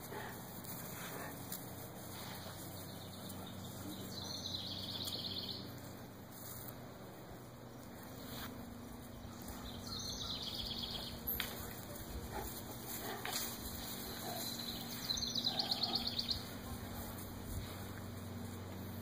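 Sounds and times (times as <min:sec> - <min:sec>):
songbird high trill: 0:09.6 - 0:11.3, 0:14.3 - 0:16.5.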